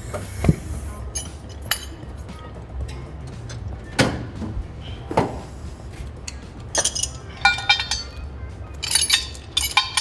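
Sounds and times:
low steady hum: 0.0s - 10.0s
metal chains clinking: 6.7s - 10.0s.

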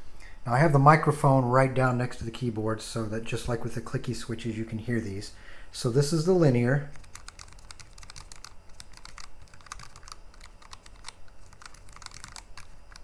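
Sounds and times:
keyboard typing clicks: 6.9s - 13.0s.

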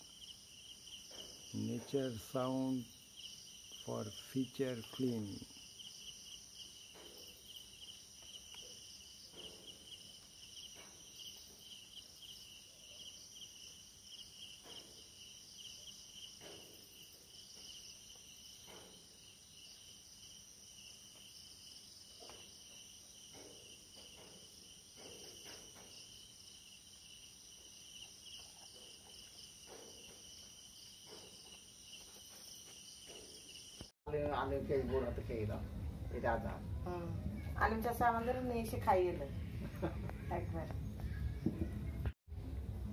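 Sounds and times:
crickets chirring: 0.0s - 34.0s.

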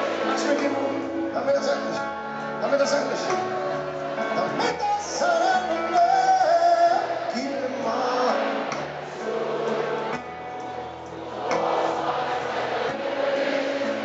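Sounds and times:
piano: 0.0s - 14.0s
person singing: 3.2s - 10.1s.

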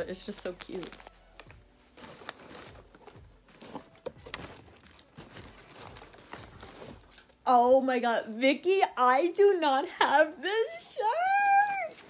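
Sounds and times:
fabric and wrapping rustling: 0.0s - 12.0s.

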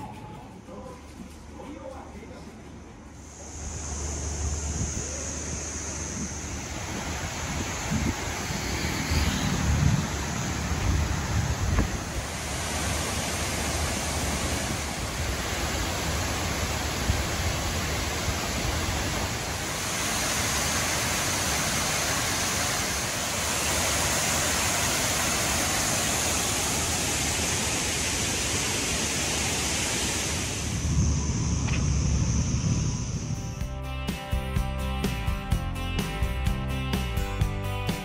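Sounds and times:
waterfall rushing: 3.3s - 31.1s.

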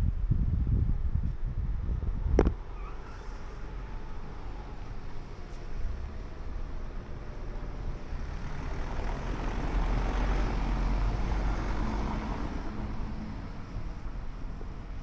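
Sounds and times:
car passing over cobblestones: 3.2s - 15.0s.

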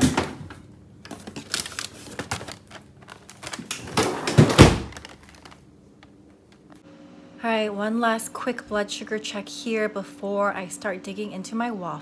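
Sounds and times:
frozen packages clicking and rustling: 0.0s - 6.7s.

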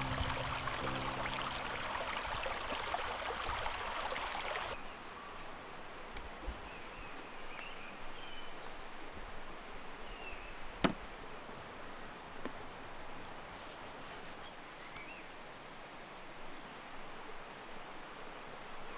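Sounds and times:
dense rushing crackling noise: 0.0s - 3.6s.

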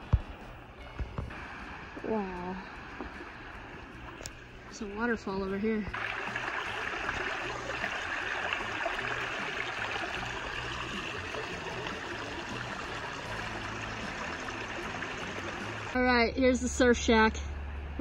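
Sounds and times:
water splashing over rocks: 5.9s - 16.0s.

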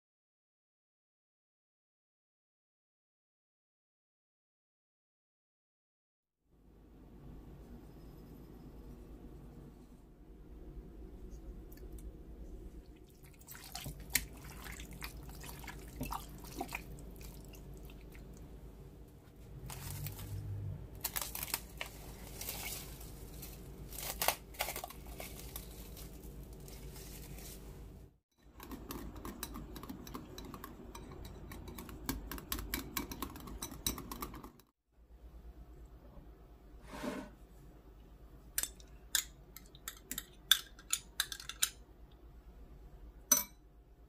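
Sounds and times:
wet liquid handling: 13.0s - 18.4s.

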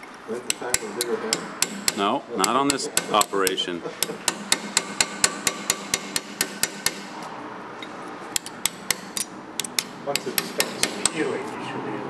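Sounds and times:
hammer tapping steel chisel: 0.4s - 7.0s, 8.3s - 11.3s.

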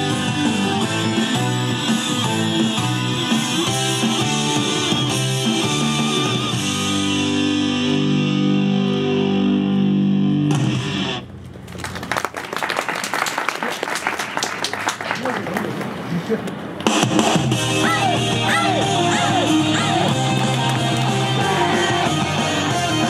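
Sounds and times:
audience clapping: 11.5s - 16.0s, 20.0s - 21.6s.

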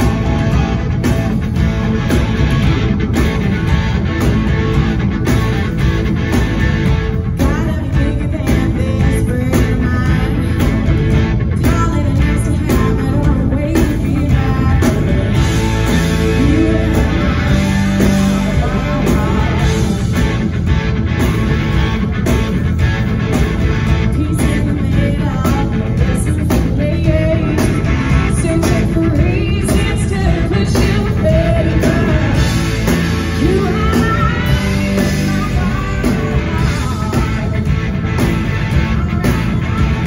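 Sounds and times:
steady beats: 0.0s - 7.7s
electric guitar: 0.0s - 40.0s
woman singing into a microphone: 7.4s - 10.9s, 11.6s - 15.6s, 16.2s - 20.0s, 23.9s - 32.6s, 33.4s - 37.8s.

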